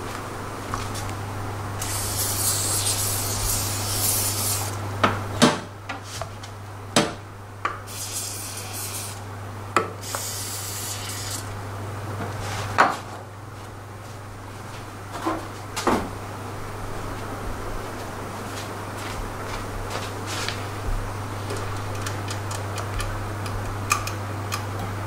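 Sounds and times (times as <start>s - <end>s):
aerosol spray can hissing: 1.8s - 4.7s, 7.9s - 9.2s.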